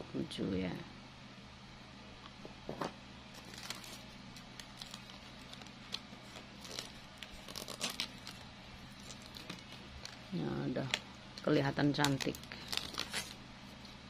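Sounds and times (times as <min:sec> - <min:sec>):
plastic flowers crinkling: 0:03.3 - 0:14.0.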